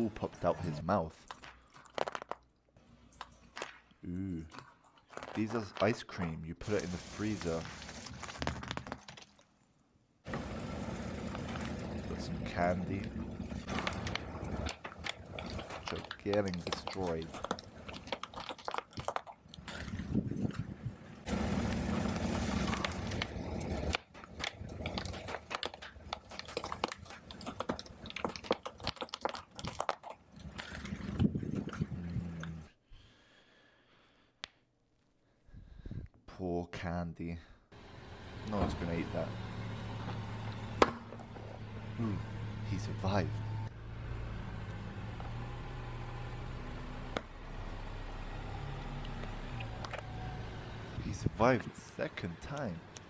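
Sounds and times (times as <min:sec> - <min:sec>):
candy canes cracking and crunching: 0:01.2 - 0:06.0, 0:06.6 - 0:09.5, 0:22.6 - 0:30.8
low engine hum: 0:10.3 - 0:14.6, 0:20.2 - 0:24.0, 0:37.8 - 0:53.0
car tyre rumble: 0:10.3 - 0:18.5, 0:19.6 - 0:29.9.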